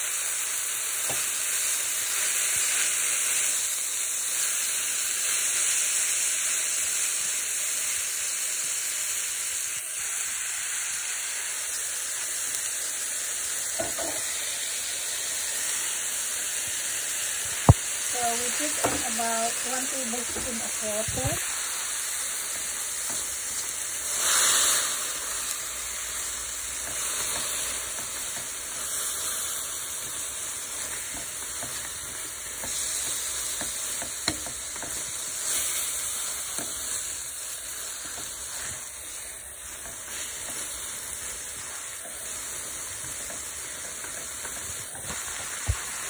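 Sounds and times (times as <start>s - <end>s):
noodles sizzling in a pan: 0.0s - 46.0s
spoon knocking on pan: 13.8s - 14.3s, 18.7s - 19.2s, 31.1s - 35.1s.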